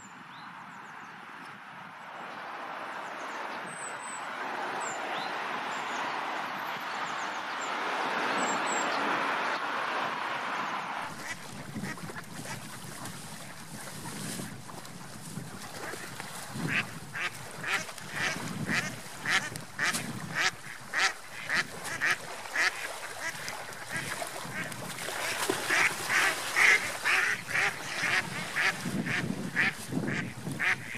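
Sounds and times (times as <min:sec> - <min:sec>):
ducks quacking: 0:11.0 - 0:13.9, 0:15.8 - 0:30.9.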